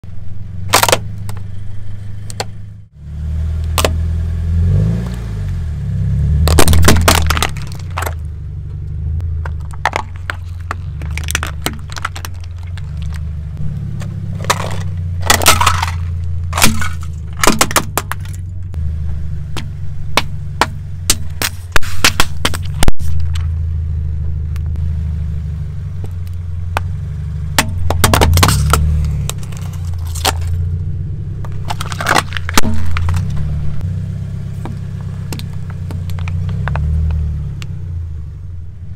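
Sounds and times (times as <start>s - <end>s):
car engine rumble: 0.0s - 38.9s
plastic crushing under tyre: 0.7s - 1.4s, 6.4s - 8.3s, 9.4s - 13.4s, 14.0s - 18.5s, 19.6s - 23.5s, 27.5s - 30.6s, 31.4s - 33.5s, 34.6s - 37.2s.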